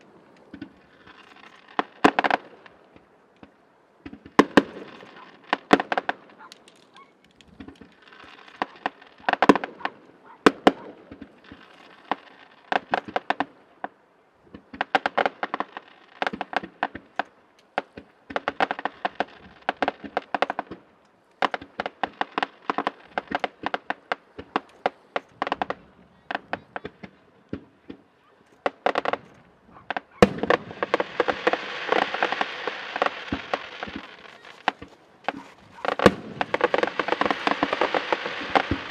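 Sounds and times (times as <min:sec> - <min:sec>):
fireworks bangs and crackles: 0:00.0 - 0:38.9
fireworks pitched hiss: 0:21.4 - 0:38.9.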